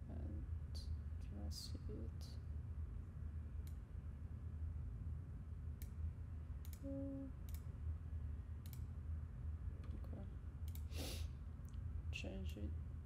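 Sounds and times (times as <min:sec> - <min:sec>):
steady low hum: 0:00.0 - 0:13.0
computer mouse clicks: 0:08.6 - 0:08.9, 0:09.8 - 0:10.9.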